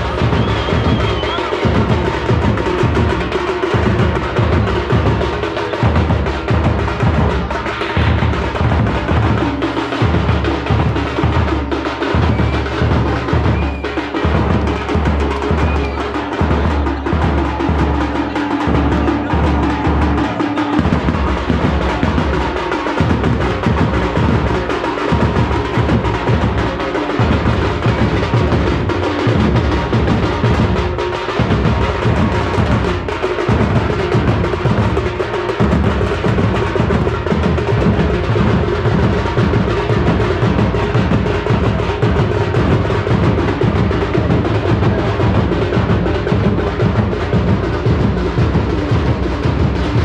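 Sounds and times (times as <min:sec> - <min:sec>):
frame drums beating: 0:00.0 - 0:50.0.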